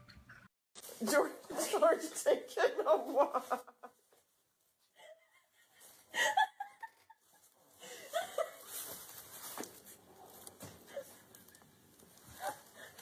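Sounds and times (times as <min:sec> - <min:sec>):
person laughing: 0:02.6 - 0:03.9, 0:05.0 - 0:08.7.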